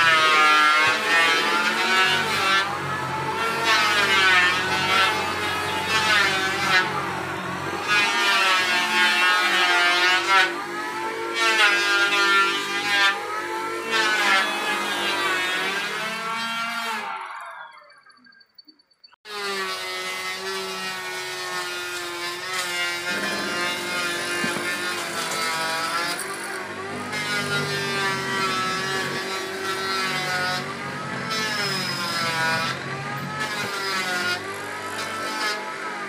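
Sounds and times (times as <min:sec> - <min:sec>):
bit cutting into wood: 0:19.3 - 0:36.0
electric motor whining: 0:20.3 - 0:36.0.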